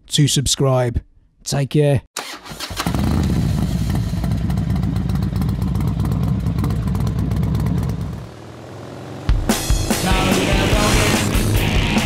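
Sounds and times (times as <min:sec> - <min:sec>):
motorcycle engine running: 0:02.9 - 0:12.0.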